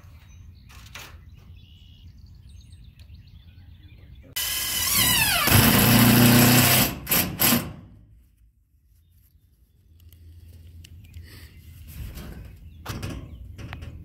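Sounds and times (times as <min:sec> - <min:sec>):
power drill driving screw into metal: 0:04.4 - 0:07.8.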